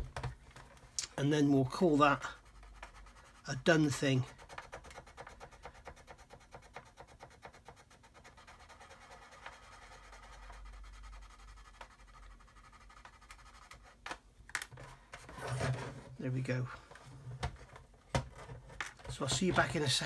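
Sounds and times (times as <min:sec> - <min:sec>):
sanding stick scratching plastic: 0:01.8 - 0:14.1.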